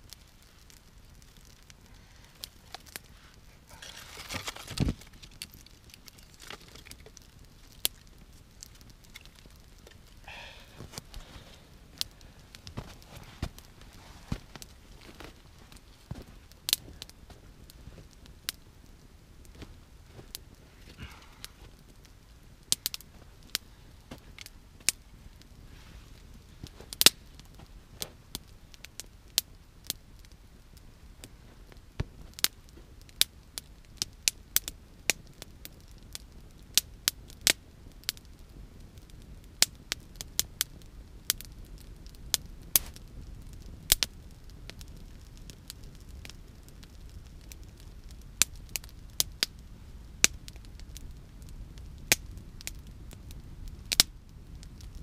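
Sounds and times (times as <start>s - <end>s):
campfire crackling: 0.0s - 55.0s
low steady fire rumble: 0.0s - 55.0s
sharp pops and snaps of fire: 0.0s - 55.0s.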